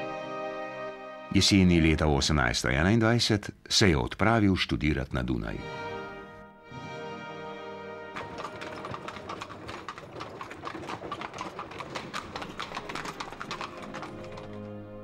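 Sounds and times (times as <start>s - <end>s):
background music: 0.0s - 2.4s, 5.2s - 15.0s
horse hooves on cobblestones: 8.1s - 15.0s.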